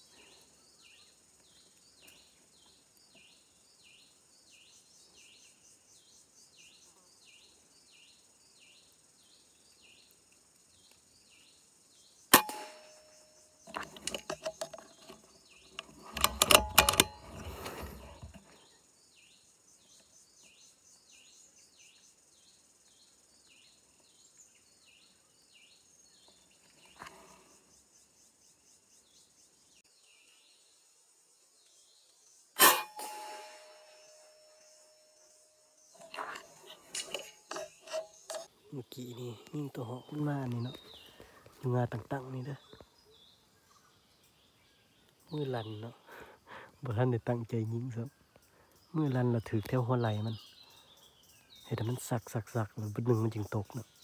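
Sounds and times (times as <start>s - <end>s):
insects buzzing: 0.0s - 54.0s
air rifle crack: 12.3s - 13.1s, 15.8s - 18.4s, 32.6s - 34.6s, 36.0s - 38.5s
rattling and knocks: 13.7s - 18.5s.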